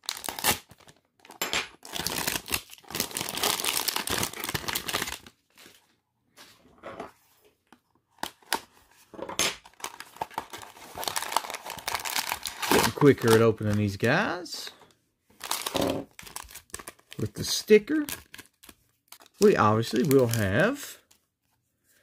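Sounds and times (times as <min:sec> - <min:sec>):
foil wrapper crinkling: 0:09.8 - 0:14.0.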